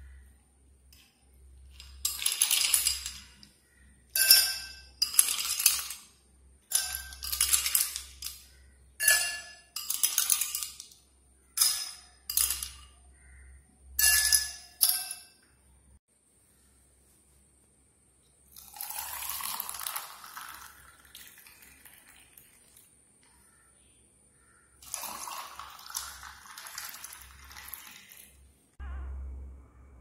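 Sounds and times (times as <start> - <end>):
ice cubes clinking in glasses: 1.7 - 3.5, 4.2 - 11.0, 11.6 - 13.0, 18.6 - 22.8, 24.8 - 28.4.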